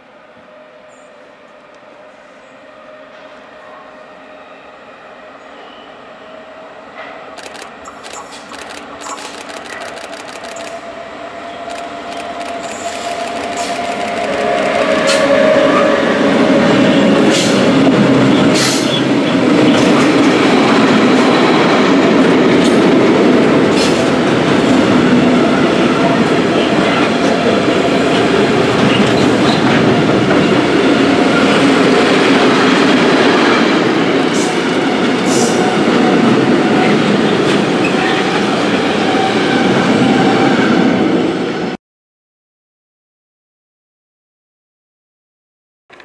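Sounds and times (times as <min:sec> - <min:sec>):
train wheels rumbling on rails: 0:07.0 - 0:41.8
sharp rail clicks: 0:07.4 - 0:10.8, 0:11.7 - 0:15.3.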